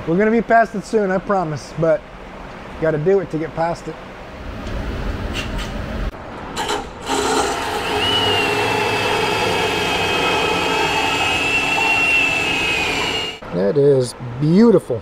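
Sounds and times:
power tool cutting sheet steel: 0:06.6 - 0:13.4.

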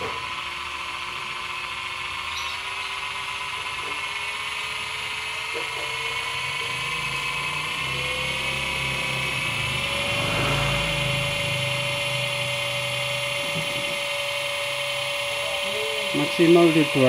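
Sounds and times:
electric motor whining: 0:00.0 - 0:17.0.

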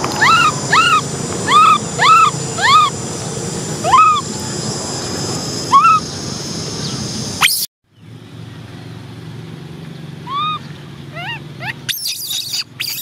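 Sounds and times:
baby monkey squealing: 0:00.1 - 0:03.0, 0:03.8 - 0:04.2, 0:05.7 - 0:06.0, 0:07.4 - 0:07.7, 0:10.2 - 0:13.0
baby monkey whimpering: 0:00.1 - 0:03.0, 0:03.8 - 0:04.2, 0:05.7 - 0:06.0, 0:10.3 - 0:13.0.

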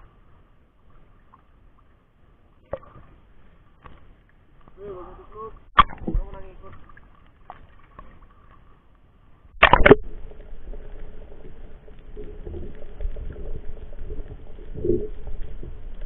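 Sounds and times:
muffled underwater rushing: 0:00.0 - 0:16.0
splash into water: 0:09.6 - 0:10.0
bubbling underwater: 0:09.6 - 0:16.0.

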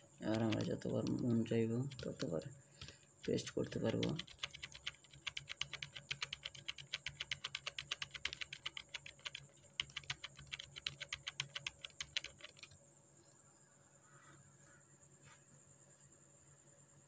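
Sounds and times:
keyboard keys clicking: 0:00.2 - 0:12.8.

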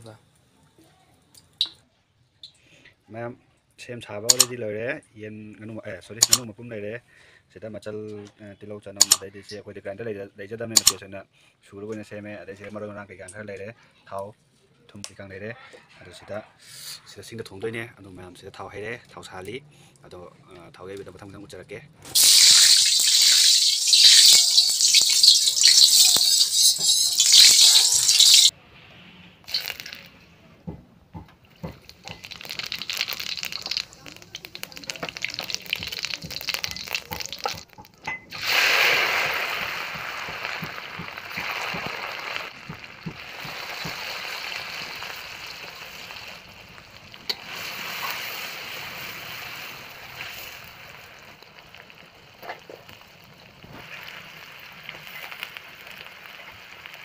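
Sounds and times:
oil crackling and popping: 0:22.1 - 0:28.5, 0:29.4 - 0:30.2, 0:31.2 - 0:57.0
hot oil sizzling in a wok: 0:22.1 - 0:28.6, 0:29.5 - 0:30.1, 0:31.6 - 0:57.0.

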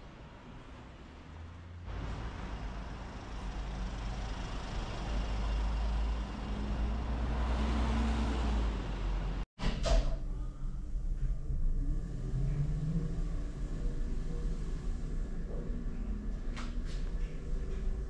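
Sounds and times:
vehicle passing close: 0:00.6 - 0:09.4.

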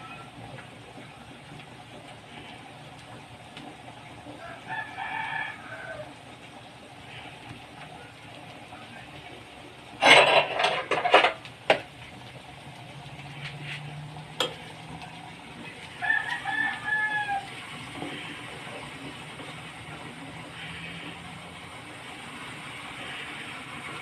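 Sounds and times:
rooster crowing: 0:04.4 - 0:06.2, 0:15.9 - 0:17.6.

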